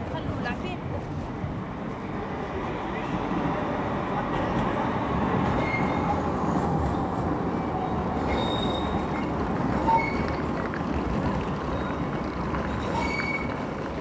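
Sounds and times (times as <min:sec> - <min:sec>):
street noise: 0:00.0 - 0:14.0
tram running past: 0:00.0 - 0:14.0
steel wheels squealing on rails: 0:05.4 - 0:14.0.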